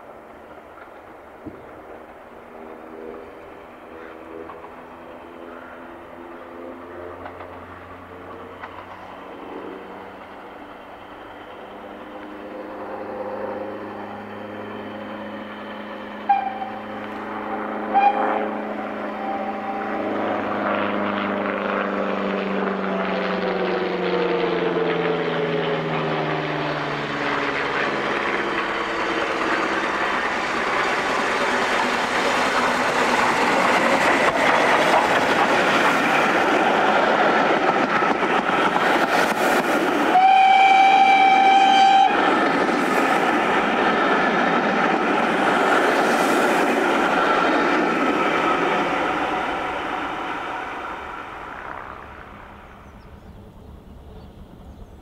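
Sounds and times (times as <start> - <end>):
steam locomotive exhaust: 7.1 - 20.4, 27.9 - 44.3
steam whistle: 16.2 - 16.9, 17.9 - 20.0, 40.0 - 42.2
train wheels clattering: 29.4 - 40.3.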